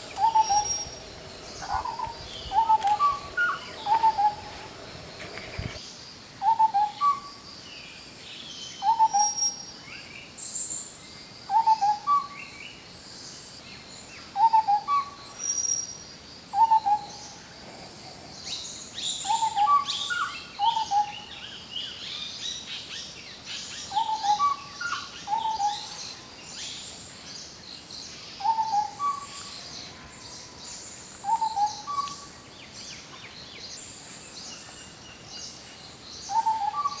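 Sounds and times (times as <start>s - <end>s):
high bird chirps and trills: 0.0s - 4.8s
bird calling low notes: 0.0s - 5.2s.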